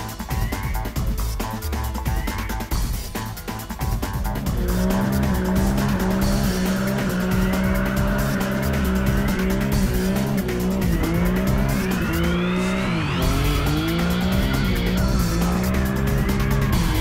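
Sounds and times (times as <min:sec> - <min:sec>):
music playing: 0:00.0 - 0:17.0
car engine revving hard: 0:03.9 - 0:17.0
tyres squealing: 0:04.4 - 0:17.0.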